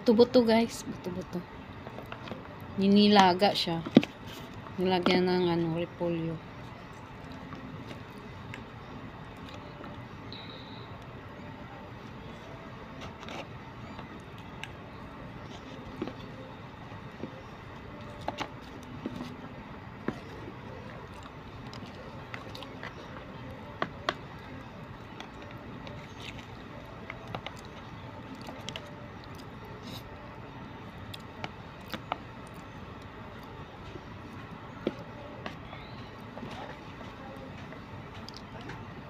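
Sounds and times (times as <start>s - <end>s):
chewing: 18.0s - 30.2s.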